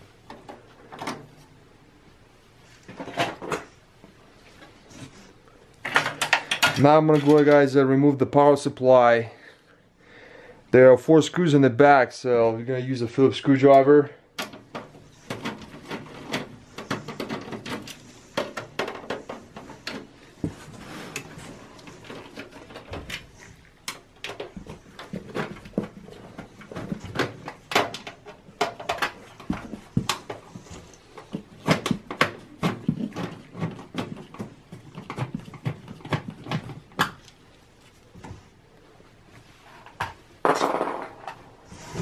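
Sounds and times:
metal clicks and rattles: 0:05.8 - 0:07.7.

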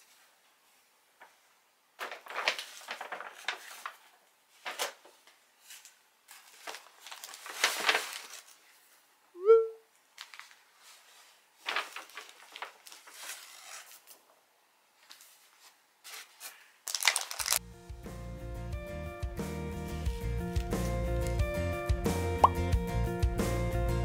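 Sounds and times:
paper bag rustling and crinkling: 0:02.0 - 0:09.0, 0:10.1 - 0:14.4, 0:15.0 - 0:17.6.

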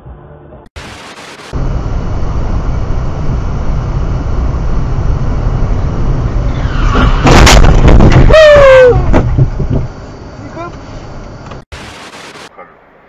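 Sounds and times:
tv static hiss: 0:00.8 - 0:01.6, 0:11.7 - 0:12.5
road and wind noise in car: 0:01.5 - 0:11.7.

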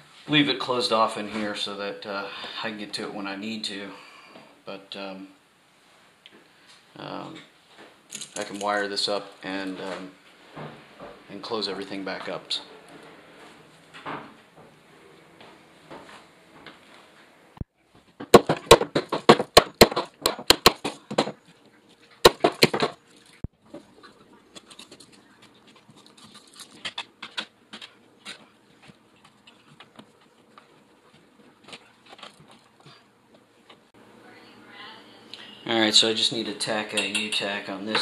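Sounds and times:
tapping and rustling: 0:17.9 - 0:23.9, 0:24.5 - 0:33.9
sharp clicks and knocks: 0:18.1 - 0:21.4.

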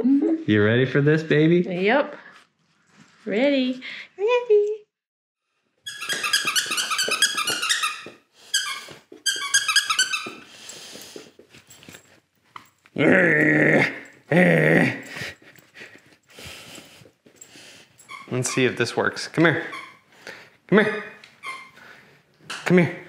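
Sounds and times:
puppy squeaking: 0:05.9 - 0:10.4, 0:18.0 - 0:19.0, 0:19.6 - 0:20.1, 0:21.3 - 0:21.8.

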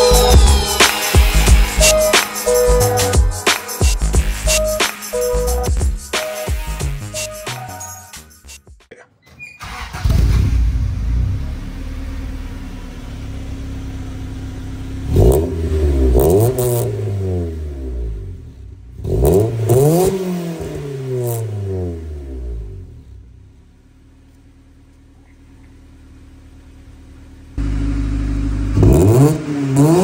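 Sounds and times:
car engine idling and revving: 0:00.0 - 0:03.4, 0:09.7 - 0:30.0.

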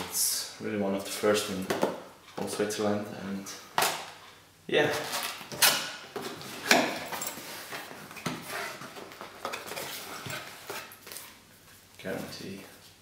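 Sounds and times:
cardboard and paper rustling: 0:06.2 - 0:11.4.

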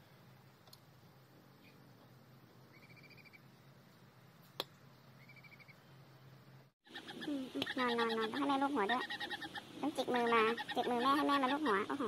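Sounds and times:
steady low hum: 0:00.0 - 0:12.0
faint high chirping trill: 0:02.7 - 0:03.5, 0:05.2 - 0:05.8.

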